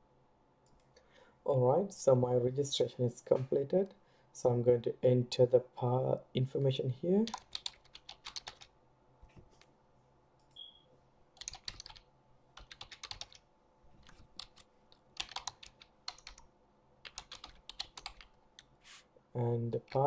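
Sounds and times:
typing on computer keyboard: 7.3 - 8.7, 11.4 - 13.4, 14.0 - 16.4, 17.0 - 18.4.

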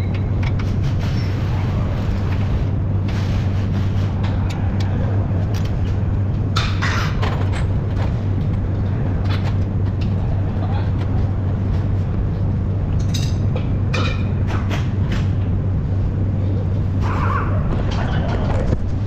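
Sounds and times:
low machine hum: 0.0 - 19.0
noisy scrapes and rustles: 0.6 - 4.4.

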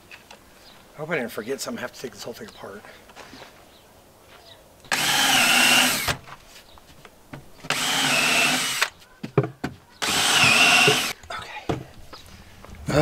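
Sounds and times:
cordless drill driving screws: 4.9 - 6.2, 7.7 - 8.9, 10.0 - 11.2.

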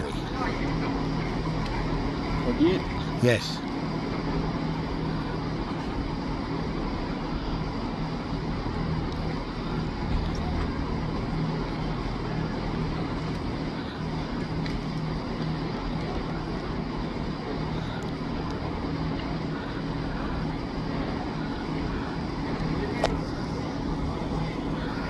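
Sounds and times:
faint voices: 0.0 - 25.0
train engine hum and rumble: 0.0 - 25.0.

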